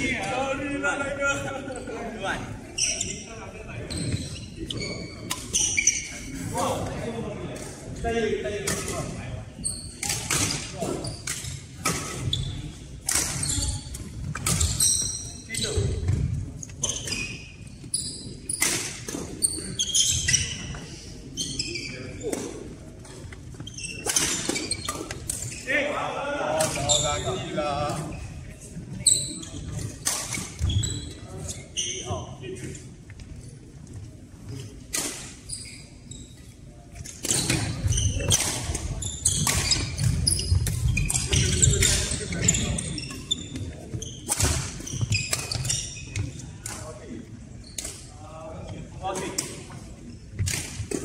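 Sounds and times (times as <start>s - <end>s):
sports shoes squeaking: 1.3s - 7.7s, 8.8s - 51.0s
rackets hitting shuttlecock: 10.0s - 14.8s, 37.0s - 42.5s.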